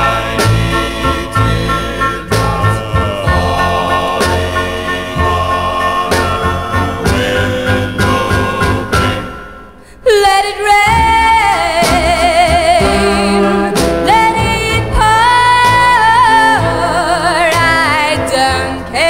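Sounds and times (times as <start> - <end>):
instrumental backing: 0.0 - 10.0, 10.9 - 19.0
girl singing with vibrato: 9.9 - 19.0.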